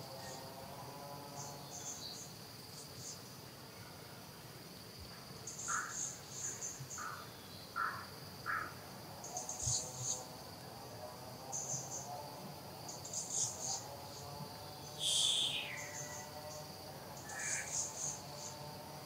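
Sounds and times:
insects buzzing: 0.0s - 19.0s
shrill insect chirps: 5.4s - 10.4s, 12.9s - 18.9s
short lower calls: 15.0s - 16.1s.

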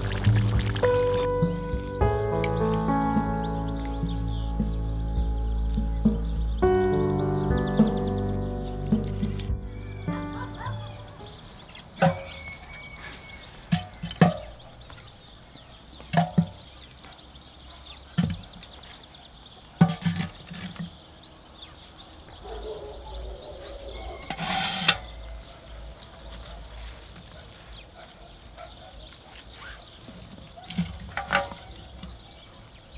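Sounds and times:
scraping rustle: 19.7s - 21.9s, 23.6s - 32.5s.

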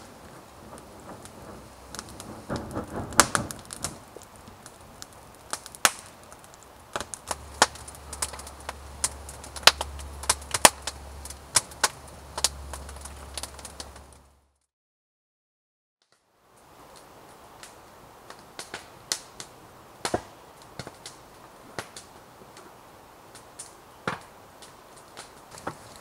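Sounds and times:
campfire crackling and popping: 0.0s - 14.4s, 16.0s - 26.0s
low steady rumble: 6.7s - 14.4s.

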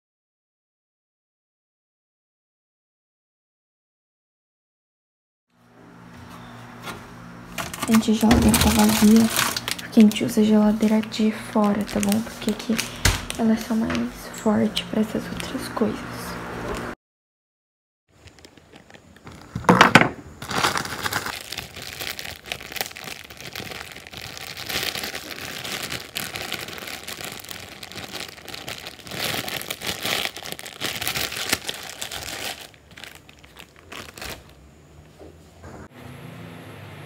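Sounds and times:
plastic bag crinkling: 7.6s - 15.8s, 18.2s - 34.6s.

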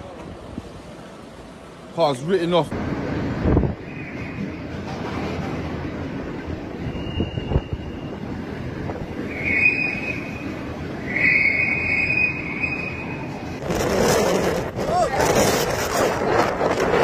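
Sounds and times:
storm wind blowing: 2.7s - 17.0s
high thin whistle: 6.8s - 8.2s, 9.2s - 13.4s.

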